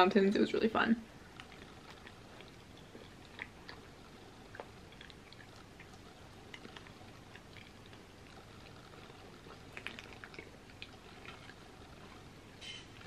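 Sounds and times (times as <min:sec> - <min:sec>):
chewing soft food: 0:01.2 - 0:13.0
wet mouth clicks: 0:01.4 - 0:11.6.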